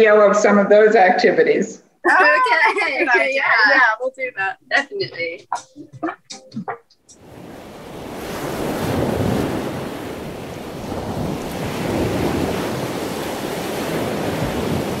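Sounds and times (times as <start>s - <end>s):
ocean waves washing in: 7.2s - 15.0s.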